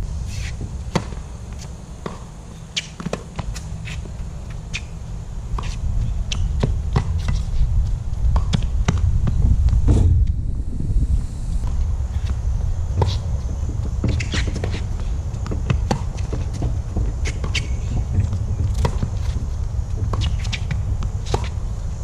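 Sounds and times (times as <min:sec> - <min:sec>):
ball bouncing on court: 0:02.0 - 0:03.6, 0:15.4 - 0:19.4
low rumble: 0:06.8 - 0:13.8
tennis ball off racket: 0:20.0 - 0:21.6.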